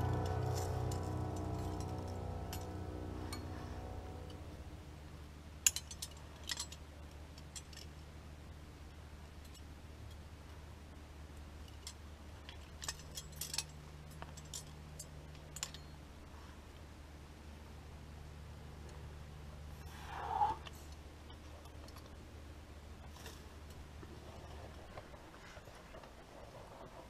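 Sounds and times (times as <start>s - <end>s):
carabiners clinking: 0.0s - 4.4s, 5.6s - 8.0s, 11.7s - 16.0s.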